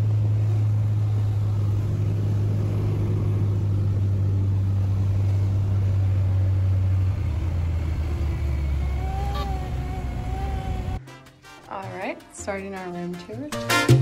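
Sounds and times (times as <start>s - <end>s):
propeller aircraft engine droning: 0.0s - 11.0s.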